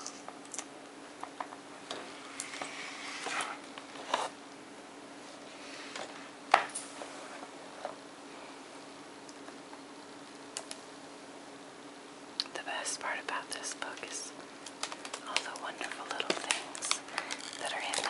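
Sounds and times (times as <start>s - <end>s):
card pages rustling: 14.0s - 18.0s.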